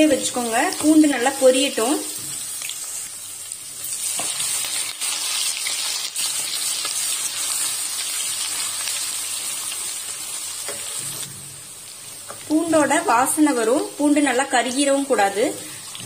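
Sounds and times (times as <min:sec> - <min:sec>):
garlic and leaves sizzling in oil: 0:00.0 - 0:16.0.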